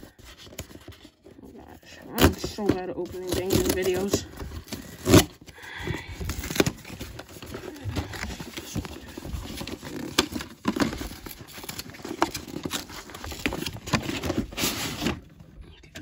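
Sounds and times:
cardboard and paper rustling: 0:00.0 - 0:15.7
packing tape tearing: 0:01.9 - 0:15.2.

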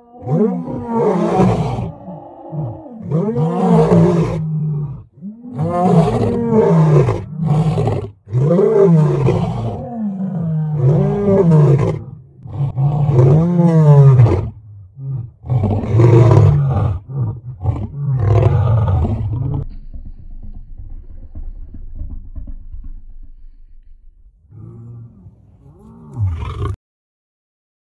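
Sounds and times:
lion grunting: 0:00.0 - 0:19.6, 0:24.4 - 0:26.8
lion roaring: 0:00.0 - 0:19.8, 0:24.4 - 0:26.8.

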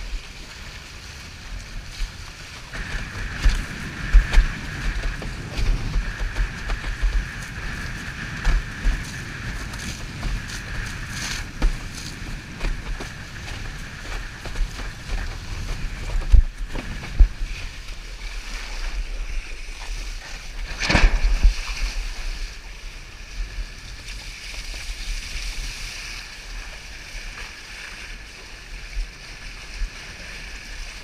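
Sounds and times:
water rushing under board: 0:00.0 - 0:31.0
wind rumbling on microphone: 0:00.0 - 0:31.0
board knocking on water: 0:02.8 - 0:17.5.

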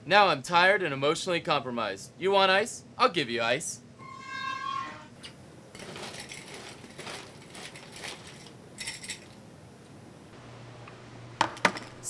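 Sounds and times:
ice cubes rattling and clinking: 0:05.8 - 0:09.4.

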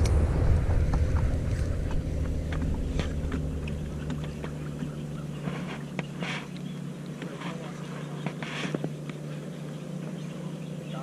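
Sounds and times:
boat motor humming: 0:00.0 - 0:11.0.

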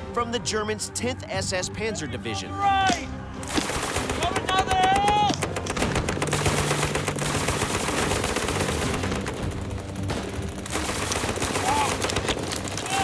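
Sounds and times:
machine gun fire: 0:03.4 - 0:12.8.

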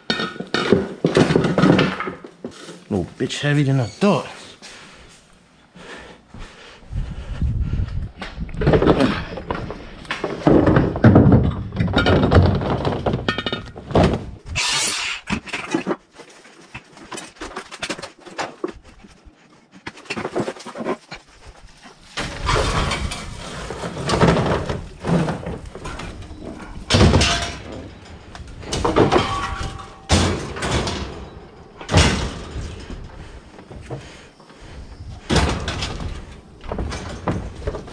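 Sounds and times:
metal clanks and bangs: 0:08.6 - 0:16.0, 0:22.1 - 0:33.4
metal scraping: 0:14.4 - 0:31.3.

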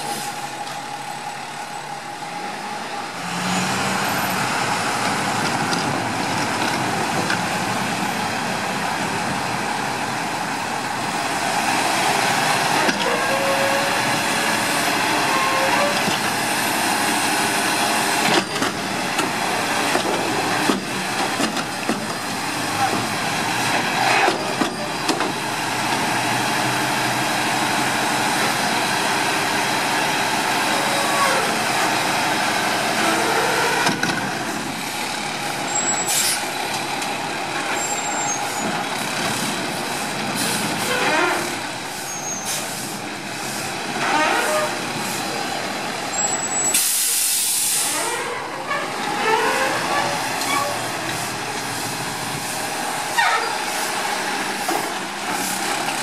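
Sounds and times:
garbage truck engine: 0:00.0 - 0:56.0
air brake release: 0:36.0 - 0:36.4, 0:42.0 - 0:43.6, 0:46.5 - 0:48.2
short air hiss: 0:36.1 - 0:36.4, 0:46.8 - 0:48.0.

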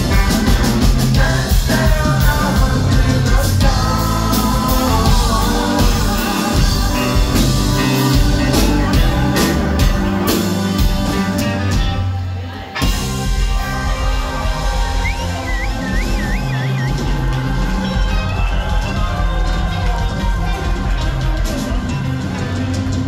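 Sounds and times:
live rock band playing: 0:00.0 - 0:23.0
women singing: 0:01.1 - 0:10.6.

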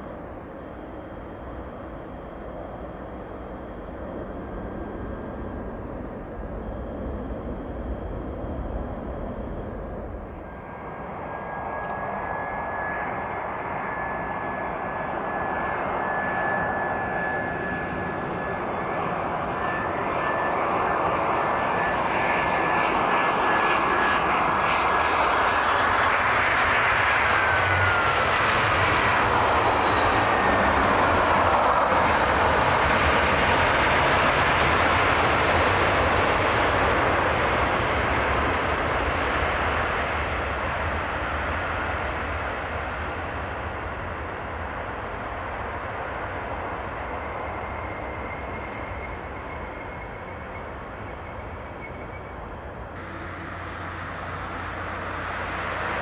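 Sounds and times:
high jet engine whine: 0:00.0 - 0:56.0
jet airliner passing by: 0:00.0 - 0:56.0.

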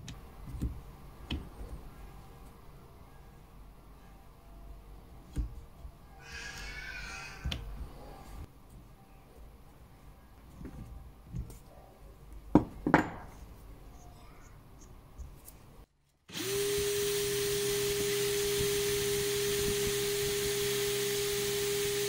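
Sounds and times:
drill whining: 0:16.3 - 0:22.0.

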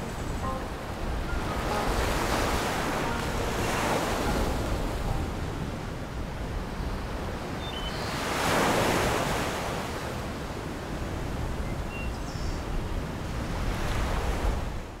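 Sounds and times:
wind buffeting microphone: 0:00.0 - 0:07.6
small waves washing onto shore: 0:00.0 - 0:11.3.

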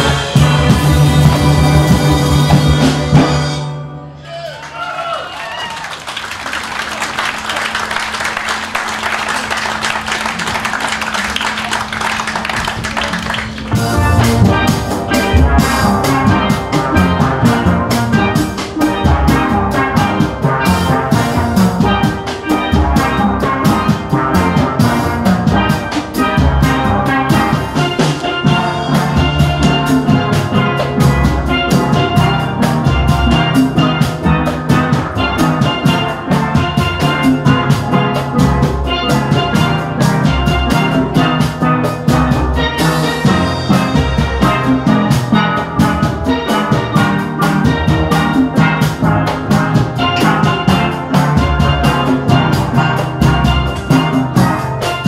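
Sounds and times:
steel band playing: 0:00.0 - 0:04.8, 0:05.7 - 0:55.0
audience applauding: 0:04.5 - 0:14.4.

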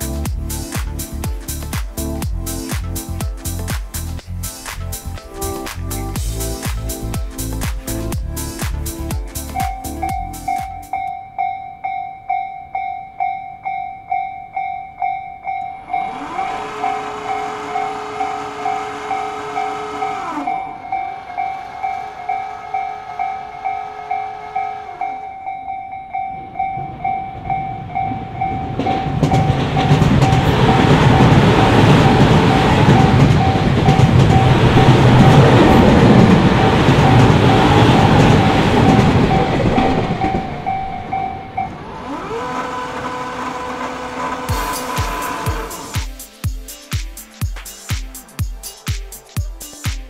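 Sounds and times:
train wheels rumbling on rails: 0:15.6 - 0:25.5, 0:26.1 - 0:46.2.

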